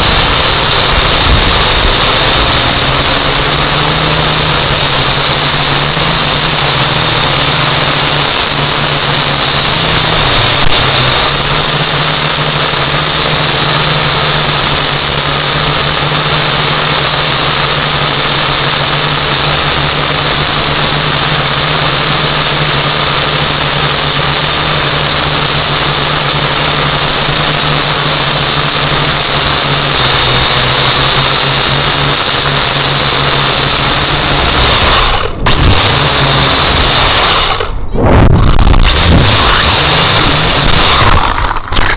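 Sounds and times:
low hum: 0.0 - 15.8, 33.0 - 41.9
drone propellers whining: 0.0 - 41.9.

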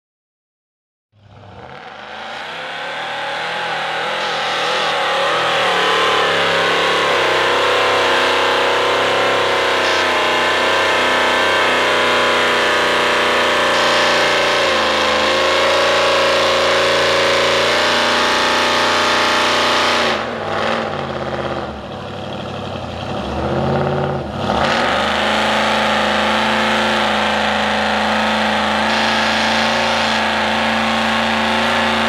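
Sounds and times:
truck engine revving: 1.2 - 32.0.

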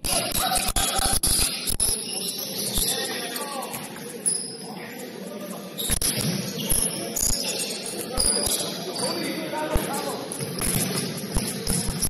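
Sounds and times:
players' voices: 0.0 - 12.0
sneaker squeaks: 1.4 - 12.0
basketball bouncing on court: 9.7 - 12.0.

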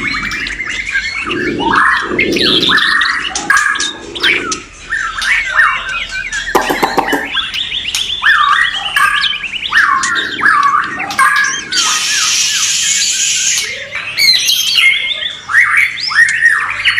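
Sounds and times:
birds whistling swooping notes: 0.0 - 16.9
harsh bird clicking notes: 6.6 - 7.4.

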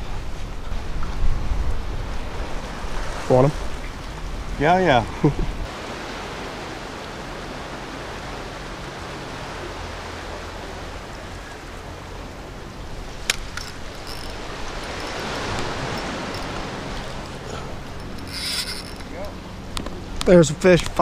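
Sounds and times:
moving water: 0.0 - 21.0
wind: 0.0 - 21.0.

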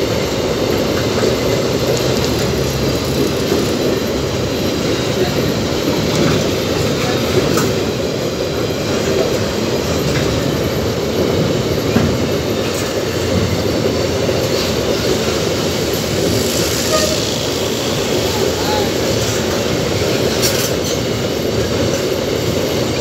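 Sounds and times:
rumble of wheels on rail: 0.0 - 23.0
clicking over rail joints: 1.0 - 4.0
faint wheel squeal: 16.2 - 19.4.

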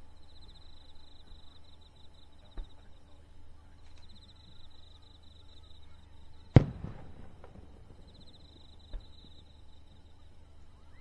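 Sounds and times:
firework boom with echo: 6.6 - 9.0
distant firework pops: 6.6 - 9.7.

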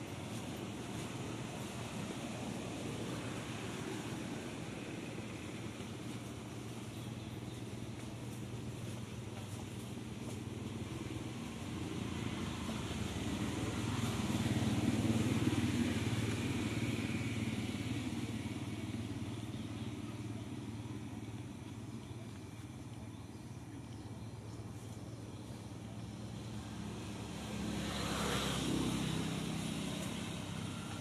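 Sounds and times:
vehicle engine passing: 10.6 - 21.5, 25.6 - 31.0.

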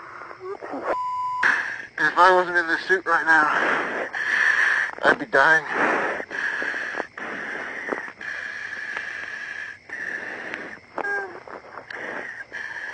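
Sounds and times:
man breathing hard: 1.4 - 2.0, 3.5 - 5.0, 5.6 - 11.0, 11.8 - 12.9.

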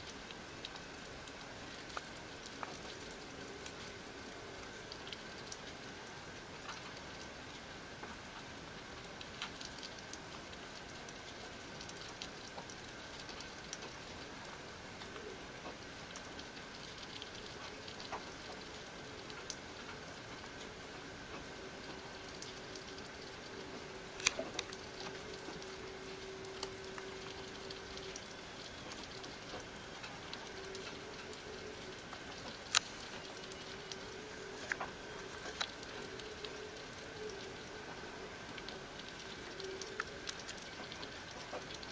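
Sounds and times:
light hiss: 0.0 - 41.9
animals chewing and licking: 24.2 - 41.9.

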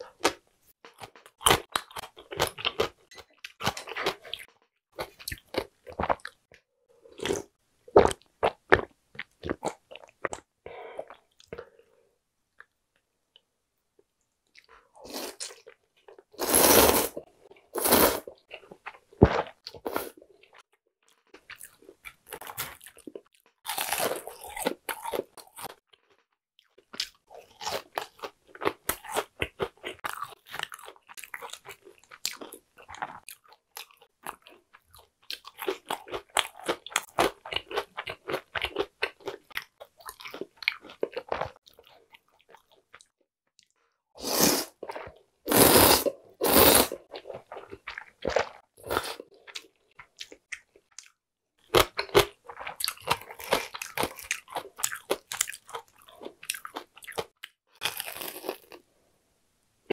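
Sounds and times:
slurping noodles: 16.4 - 18.3, 44.2 - 44.9, 45.5 - 47.1
crunchy chewing: 17.8 - 43.7, 44.8 - 58.8.

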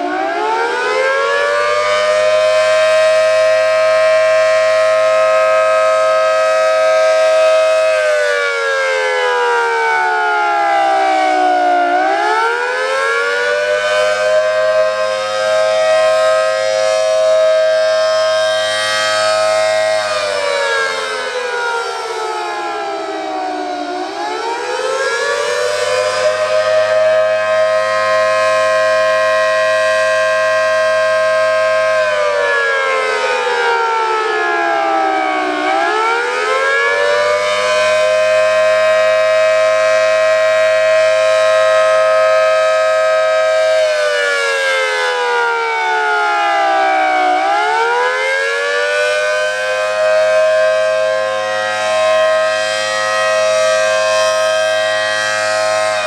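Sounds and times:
rotating siren wailing: 0.0 - 56.0.

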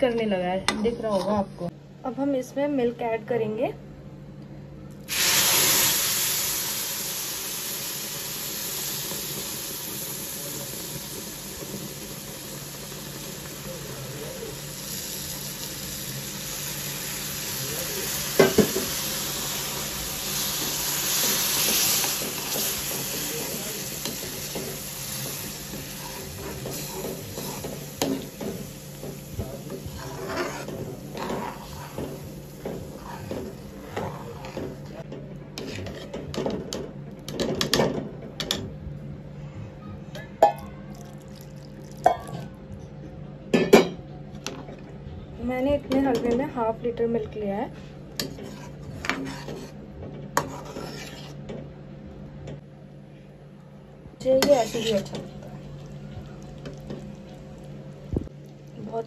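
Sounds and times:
milk sizzling in hot fat: 5.1 - 35.0
spatula scraping a pan: 25.7 - 28.5, 29.7 - 34.8, 35.6 - 36.2, 47.8 - 49.8, 50.4 - 51.5, 54.4 - 55.2.

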